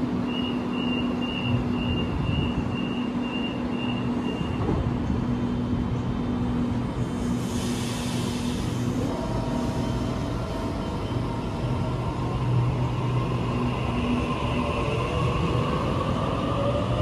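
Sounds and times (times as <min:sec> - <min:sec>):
train humming: 0:00.0 - 0:17.0
hiss: 0:07.1 - 0:09.0.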